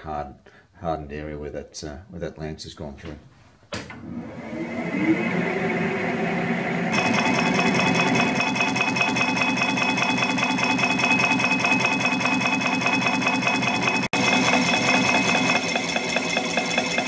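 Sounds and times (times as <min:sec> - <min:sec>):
metal lathe running: 0:04.4 - 0:17.0
tool cutting metal with fast rattle: 0:06.9 - 0:17.0.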